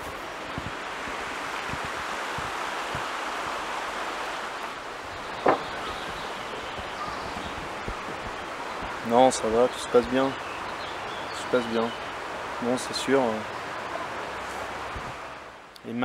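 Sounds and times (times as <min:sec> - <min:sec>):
stream water flowing: 0:00.0 - 0:15.7
wooden bench creaking: 0:05.2 - 0:08.4.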